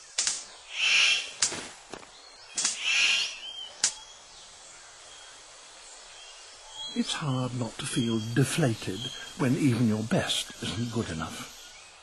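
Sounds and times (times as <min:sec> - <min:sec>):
bird rasping hiss: 0:00.0 - 0:01.8, 0:02.4 - 0:05.6
forest background: 0:00.0 - 0:12.0
bird sharp clicks: 0:00.1 - 0:01.6, 0:02.5 - 0:04.1.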